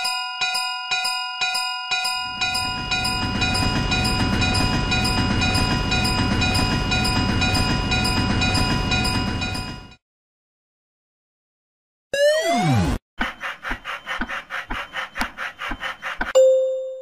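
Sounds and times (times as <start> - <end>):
level-crossing bell ringing: 0.0 - 10.0, 16.4 - 17.0
train rumble and wheel clatter: 2.3 - 10.0.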